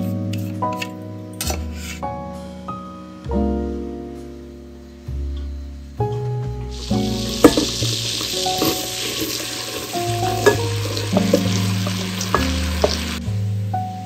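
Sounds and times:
background music: 0.0s - 14.0s
onion pieces tapping pot: 6.7s - 13.2s
onions sizzling in butter: 6.7s - 14.0s.

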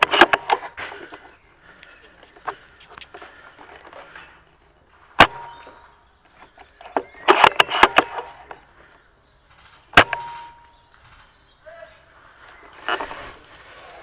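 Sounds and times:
airsoft rifle shots: 0.0s - 0.9s, 5.2s - 5.9s, 7.2s - 8.5s, 9.9s - 10.7s.

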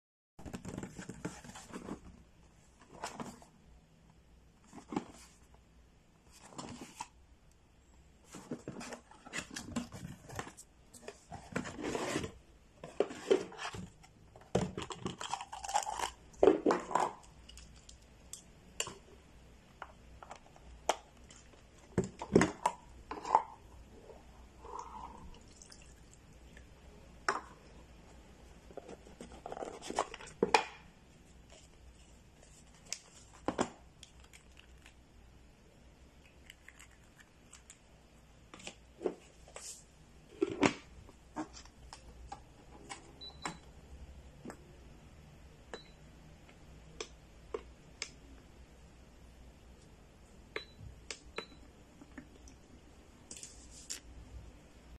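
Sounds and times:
cardboard boxes rustling and scraping: 0.6s - 3.6s, 8.2s - 14.0s.

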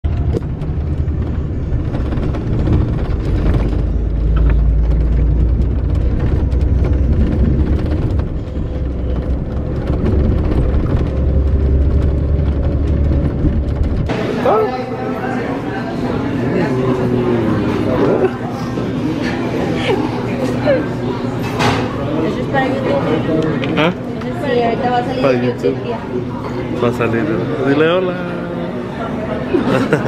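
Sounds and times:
engine and road noise rumble: 0.0s - 14.3s.

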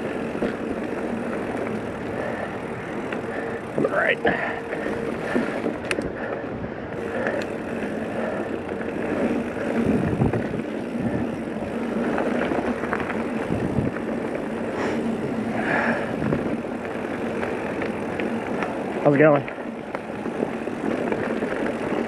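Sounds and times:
tyres rolling on dirt: 0.0s - 22.0s
bike knocks and rattles: 7.0s - 22.0s
wind on microphone: 9.6s - 11.5s, 12.5s - 14.2s, 15.1s - 16.8s.

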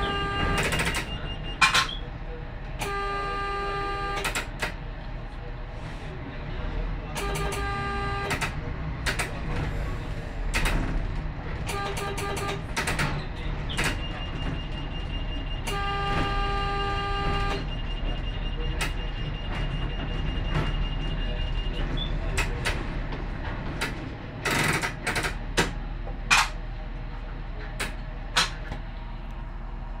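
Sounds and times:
train horn blast: 0.0s - 0.9s, 2.8s - 4.4s, 7.2s - 8.5s, 11.7s - 12.6s, 15.6s - 17.7s
train rumbling slowly: 0.0s - 30.0s
sharp clicks and knocks: 7.2s - 9.7s, 10.5s - 14.7s, 21.8s - 26.6s.

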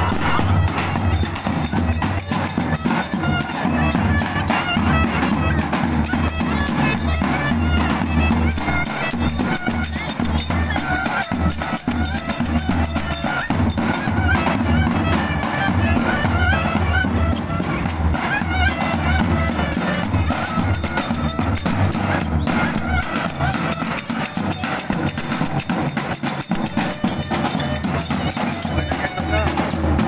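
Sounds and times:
bass drum beating: 0.0s - 1.3s
clarinet melody: 5.2s - 25.2s.

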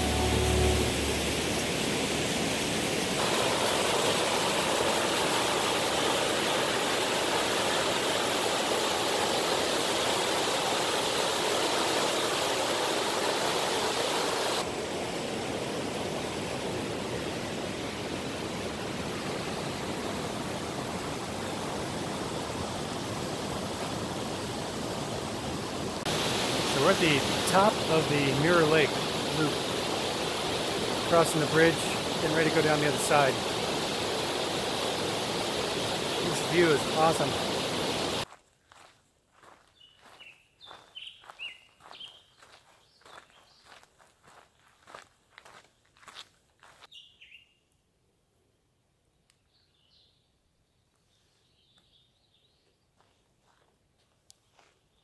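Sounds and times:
rushing creek water: 0.0s - 38.3s.

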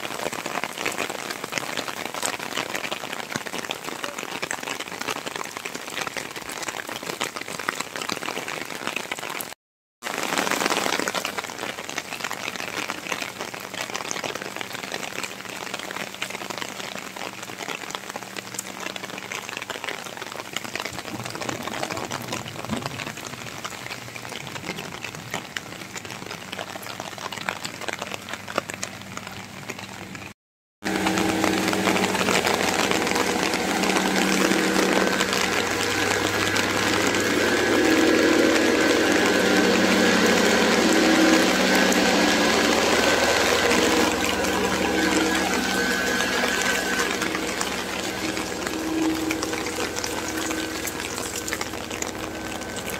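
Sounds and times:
rain on wet pavement: 0.0s - 52.9s
steady low engine hum: 30.9s - 52.9s.

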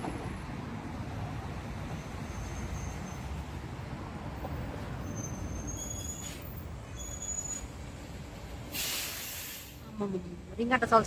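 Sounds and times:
traffic rumble: 0.0s - 11.0s
short hiss: 8.7s - 9.8s.

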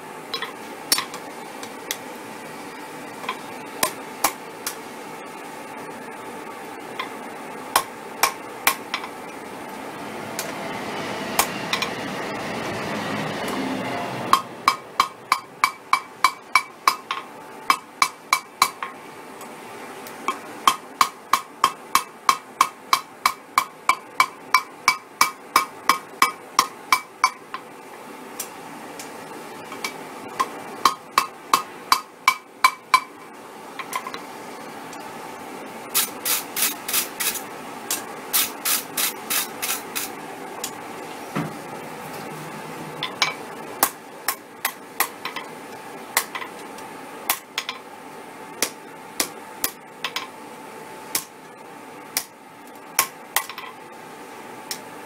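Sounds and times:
rushing noise: 9.8s - 14.9s
hammer striking metal on anvil: 14.3s - 18.9s, 20.7s - 27.4s, 30.8s - 33.1s.

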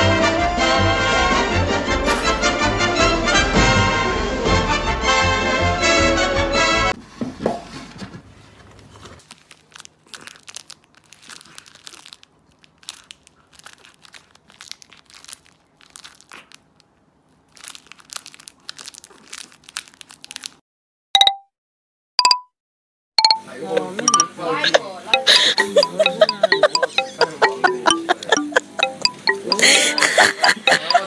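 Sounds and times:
plastic wrapper crinkling: 9.1s - 20.6s.

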